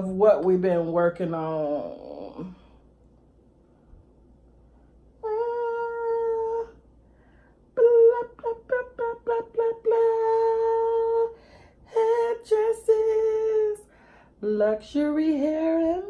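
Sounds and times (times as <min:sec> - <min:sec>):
woman singing: 0:05.2 - 0:06.8, 0:07.7 - 0:16.0.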